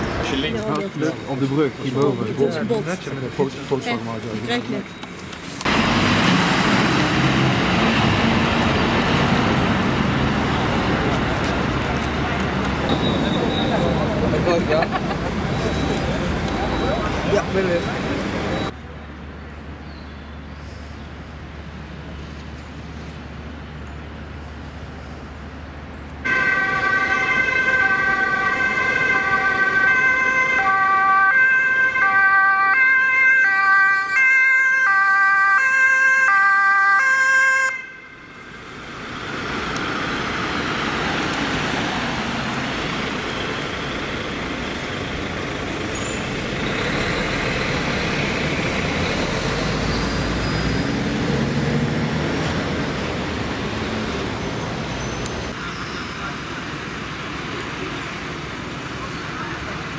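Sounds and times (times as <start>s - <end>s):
road traffic passing: 0.0s - 59.9s
two-tone emergency siren: 26.3s - 38.4s.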